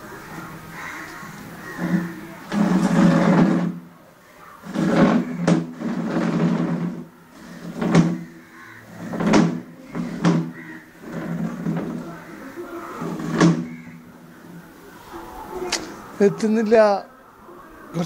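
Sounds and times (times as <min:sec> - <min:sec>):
plastic chair scraping on tiles: 0:00.8 - 0:14.8.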